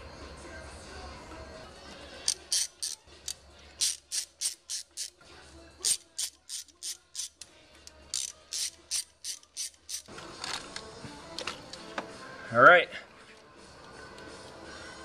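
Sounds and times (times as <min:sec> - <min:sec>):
socket ratchet clicking: 0:02.2 - 0:05.2, 0:05.8 - 0:10.1.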